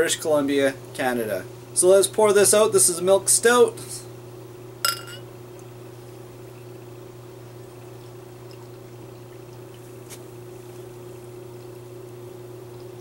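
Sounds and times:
beer pouring into a glass: 4.8 - 13.0.

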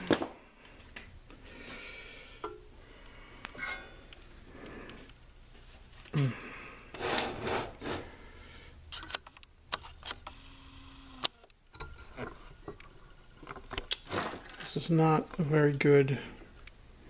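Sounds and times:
camera stand rubbing and scraping: 7.0 - 8.1.

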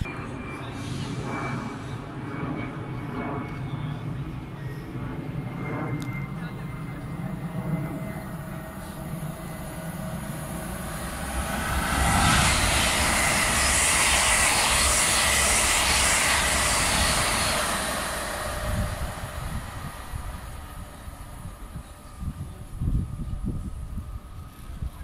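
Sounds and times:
train passing at speed: 5.9 - 25.0.

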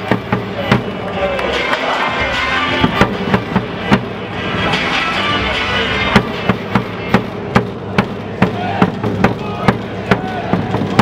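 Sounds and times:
stadium cheer music: 0.0 - 11.0
percussive hits: 2.8 - 4.3, 6.1 - 11.0.

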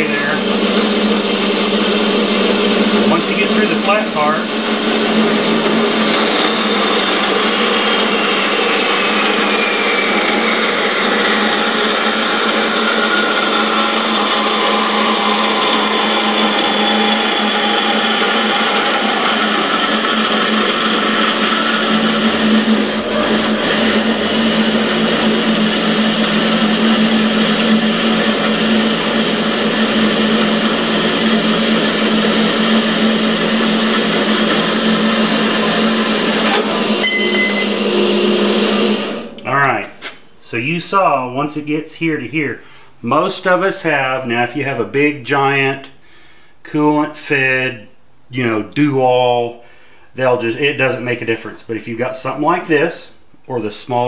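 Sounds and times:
motor hum: 0.0 - 40.2
band saw cutting steel: 0.0 - 40.3
high whine: 0.0 - 41.0.

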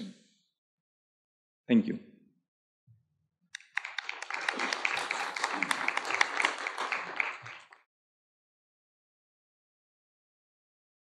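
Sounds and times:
audience applauding: 3.6 - 7.8.

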